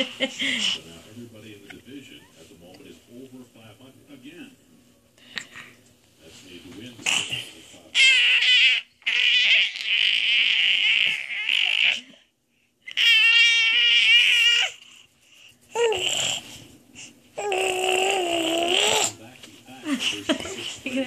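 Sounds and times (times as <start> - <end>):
baby squealing and babbling: 8.0 - 12.0, 12.9 - 14.8, 15.8 - 16.4, 17.4 - 19.2.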